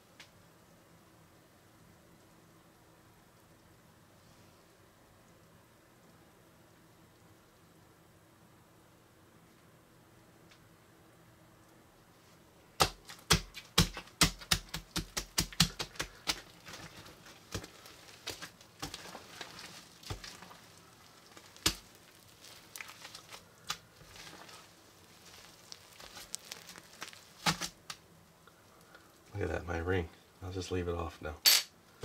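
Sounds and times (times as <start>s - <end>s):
slime beads crackling and popping: 12.8s - 28.0s.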